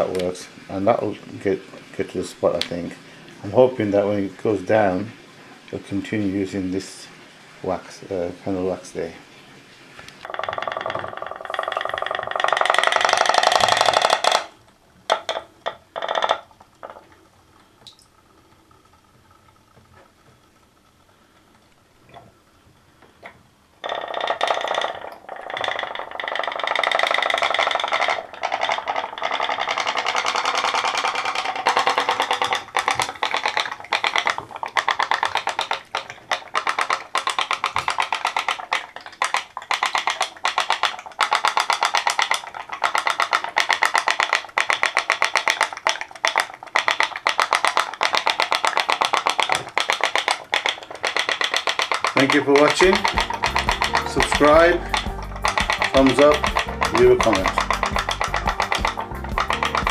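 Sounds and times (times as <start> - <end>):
pop-pop boat engine popping: 10.2 - 17.1, 23.2 - 59.9.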